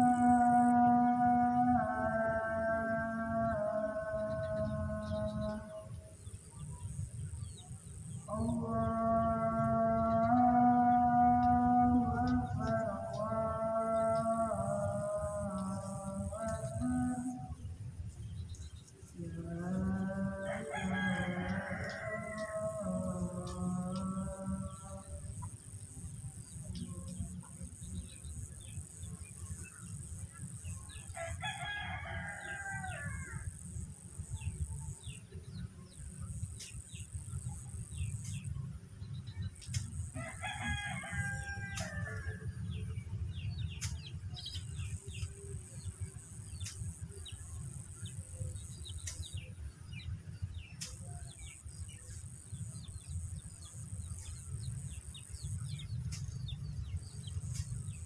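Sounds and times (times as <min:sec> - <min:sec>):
high insect drone: 0:00.0 - 0:58.0
rooster crowing: 0:19.6 - 0:25.1, 0:30.9 - 0:34.4, 0:40.1 - 0:42.7.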